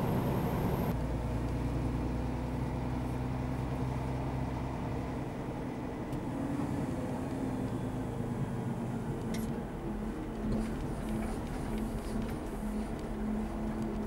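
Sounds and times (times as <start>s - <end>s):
diesel truck engine running: 0.0s - 0.9s.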